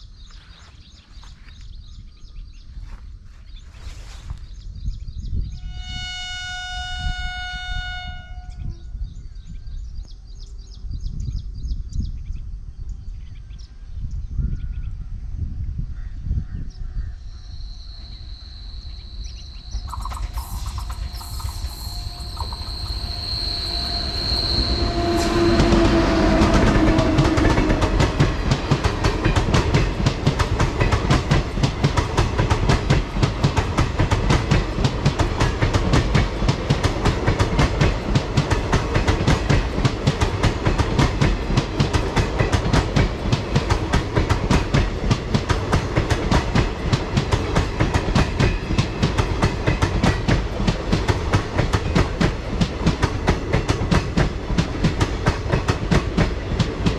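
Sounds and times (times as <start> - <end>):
train passing at speed: 17.4 - 56.9
steady high tone: 17.7 - 28.5.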